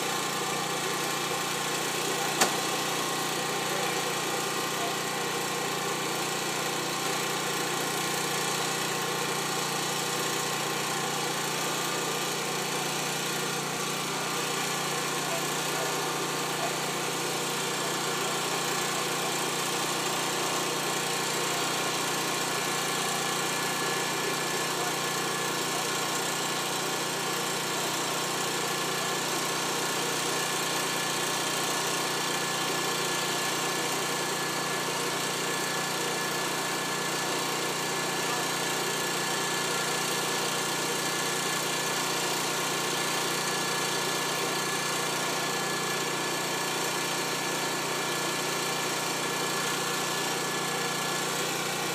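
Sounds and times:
fire truck engine running: 0.0s - 51.9s.

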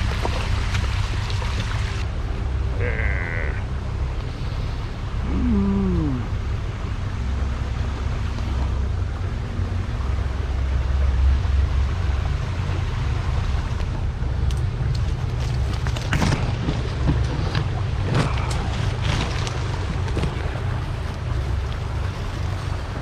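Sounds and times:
camera jostling rumble: 13.7s - 21.8s.

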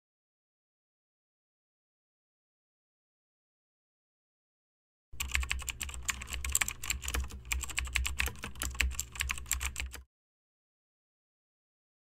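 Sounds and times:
low steady hum: 5.2s - 10.0s
rapid keyboard typing: 5.2s - 10.0s.

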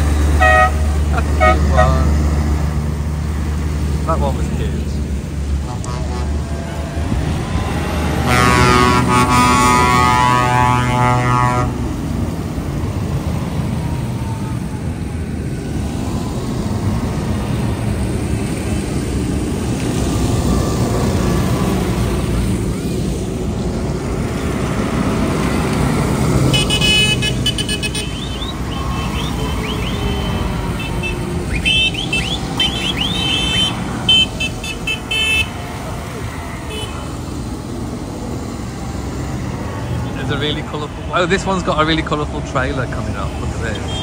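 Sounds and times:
diesel tractor engines running: 0.0s - 44.0s
tractor horn blast: 0.4s - 2.1s, 5.6s - 6.8s, 8.1s - 11.9s, 26.5s - 35.6s, 36.6s - 37.1s, 43.7s - 44.0s.

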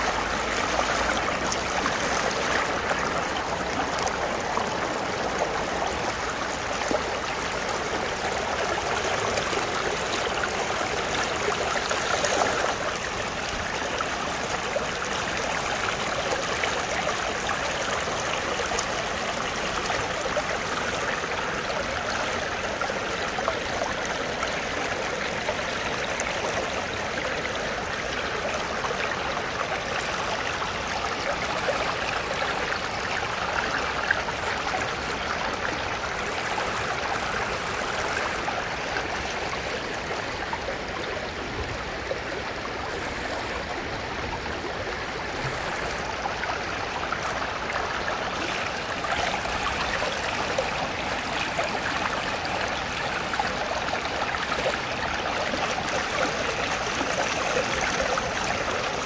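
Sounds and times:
stream flowing over rocks: 0.0s - 59.0s.

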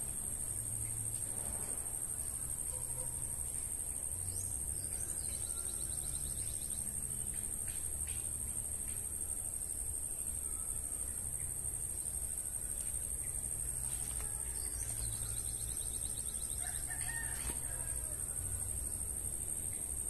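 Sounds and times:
rooster crowing: 16.5s - 18.6s.

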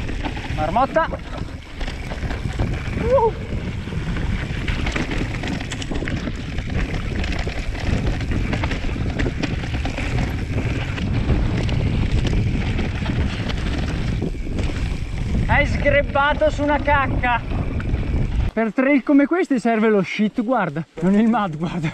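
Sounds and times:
bike rattling over stones: 0.0s - 18.6s, 21.0s - 21.9s
wind rushing over microphone: 0.0s - 18.6s.

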